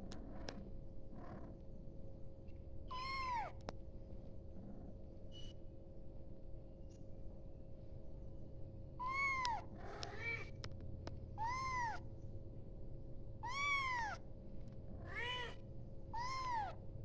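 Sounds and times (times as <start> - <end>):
kitten meowing: 2.9 - 3.6, 9.0 - 10.5, 11.4 - 12.0, 13.4 - 14.2, 15.1 - 15.6, 16.2 - 16.8.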